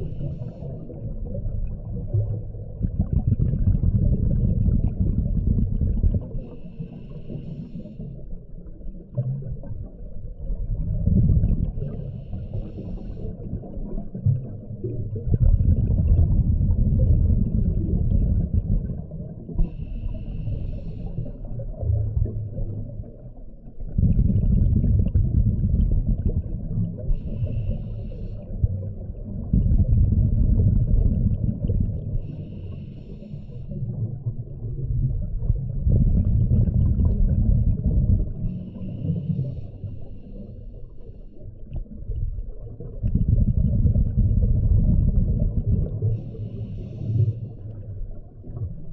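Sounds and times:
exhaled bubbles gushing: 0.0 - 7.0, 8.4 - 32.5, 33.8 - 48.9
regulator breathing hisses: 6.5 - 8.2, 12.0 - 13.4, 19.7 - 21.3, 32.3 - 33.8, 46.2 - 47.6.

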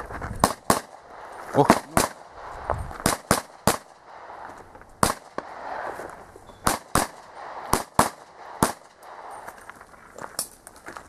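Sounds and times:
pistol shots: 0.4 - 4.4, 5.0 - 6.0, 6.6 - 9.5.

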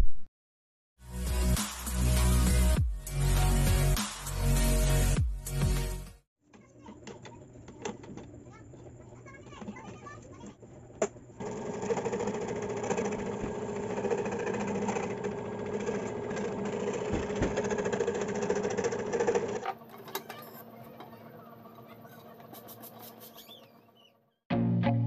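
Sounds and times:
scroll saw cutting wood: 11.4 - 23.6.

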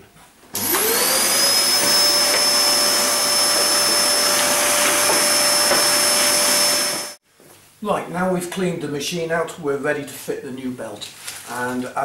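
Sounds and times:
vacuum cleaner whining: 0.5 - 7.2.

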